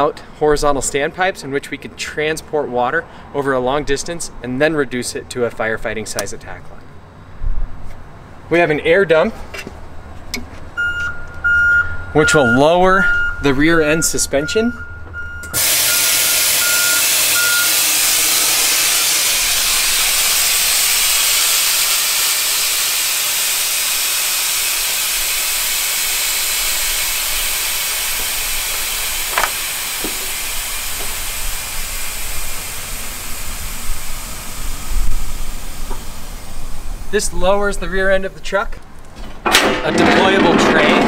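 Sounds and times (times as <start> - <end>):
short beeps: 10.8 - 17.8
compressed air hissing: 15.6 - 37.1.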